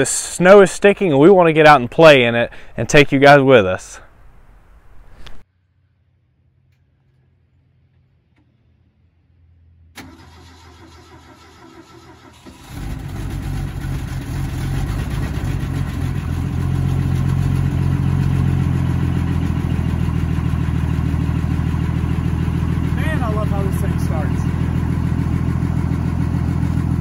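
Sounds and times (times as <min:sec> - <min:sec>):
engine idling: 0:06.6 - 0:27.0
engine starter cranking: 0:10.0 - 0:15.4.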